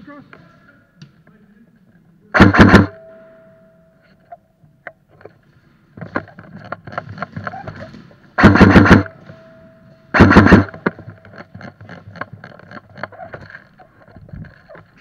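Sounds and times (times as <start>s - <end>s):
airsoft gun burst: 2.4s - 3.0s, 8.4s - 9.2s, 10.1s - 11.0s
soft irregular clicks and knocks: 4.0s - 8.2s, 10.7s - 15.0s.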